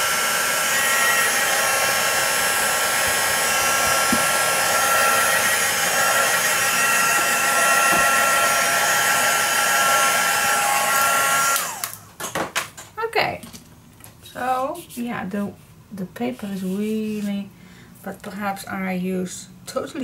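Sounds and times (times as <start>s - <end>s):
heat tool blowing with high hum: 0.0s - 12.0s.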